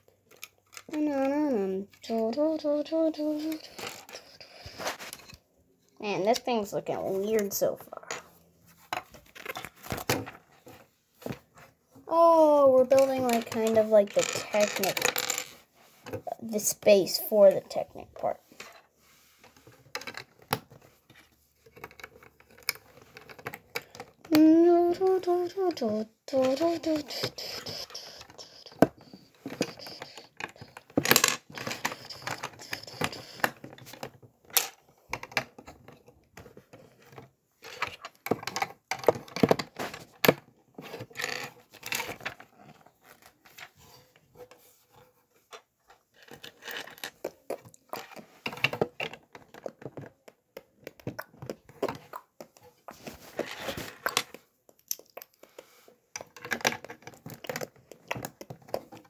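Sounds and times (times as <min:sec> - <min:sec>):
plastic bricks clicking and rattling: 0:12.9 - 0:15.6.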